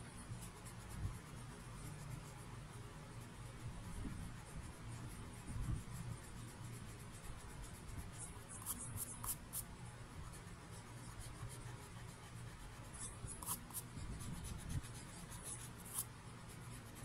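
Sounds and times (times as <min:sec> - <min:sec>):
eraser rubbing on paper: 0:00.0 - 0:17.0
low steady hum: 0:00.0 - 0:17.0.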